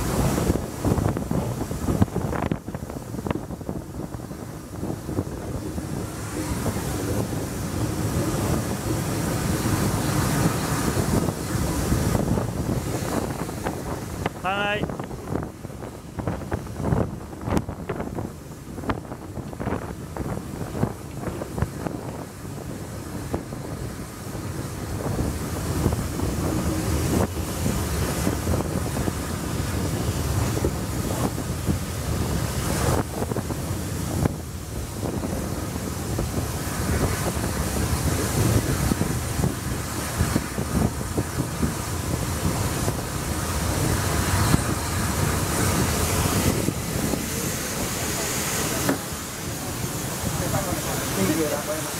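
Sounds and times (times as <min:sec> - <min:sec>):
train rumble and clatter: 0:00.0 - 0:51.9
wind buffeting microphone: 0:00.0 - 0:51.9.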